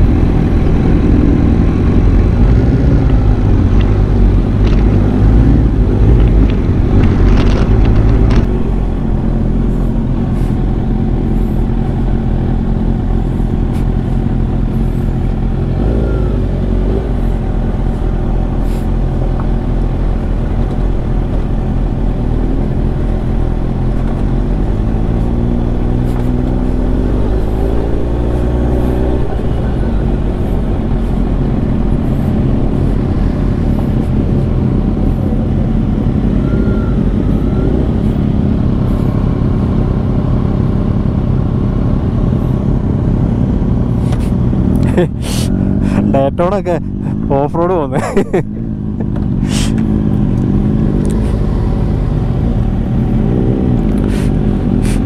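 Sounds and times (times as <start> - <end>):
motorcycle engines running: 0.0 - 55.0.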